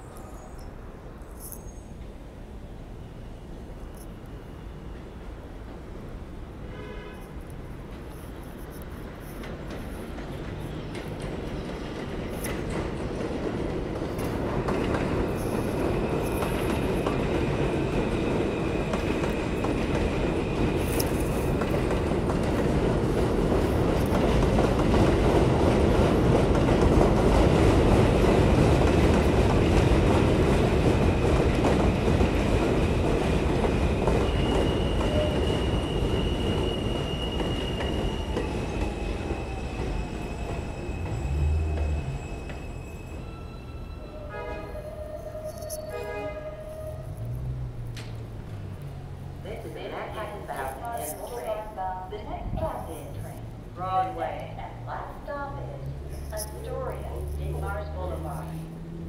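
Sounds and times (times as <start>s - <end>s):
train rumbling and rattling: 7.3s - 59.0s
high-pitched wheel squeal: 34.2s - 47.6s.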